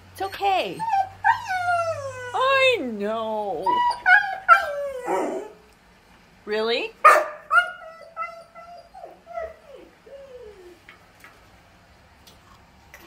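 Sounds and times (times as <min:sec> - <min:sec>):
dog whining and howling: 0:00.7 - 0:02.7, 0:03.5 - 0:05.7, 0:07.3 - 0:10.8.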